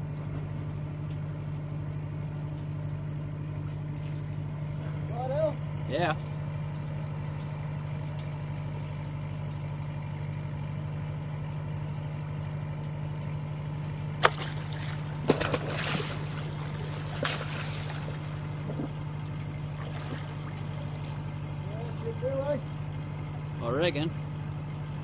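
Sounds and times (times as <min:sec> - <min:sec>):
low engine hum: 0:00.0 - 0:25.0
fish splashing into water: 0:14.0 - 0:21.7.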